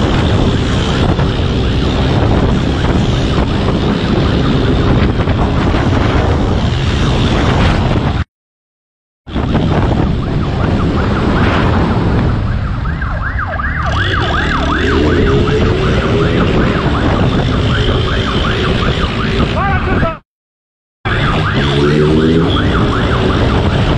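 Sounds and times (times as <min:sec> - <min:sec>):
motorcycle engine running hard: 0:00.0 - 0:07.3
heavy wind rush: 0:00.0 - 0:08.3, 0:09.3 - 0:20.2, 0:21.1 - 0:23.9
police siren yelping: 0:09.4 - 0:20.0, 0:21.1 - 0:23.9.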